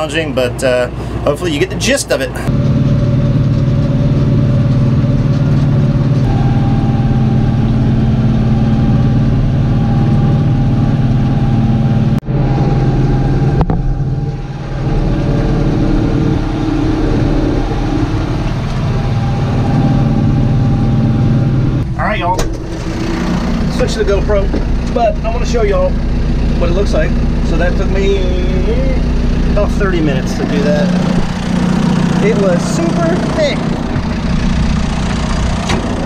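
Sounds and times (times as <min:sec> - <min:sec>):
tractor diesel engine running: 0:00.0 - 0:36.0
hay mower cutting grass: 0:22.6 - 0:36.0.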